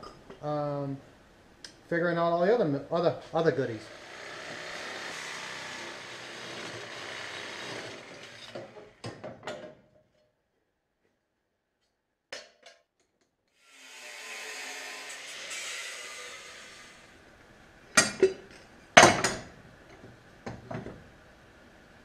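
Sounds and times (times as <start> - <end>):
power tool cutting steel: 3.6 - 9.0, 13.6 - 17.2.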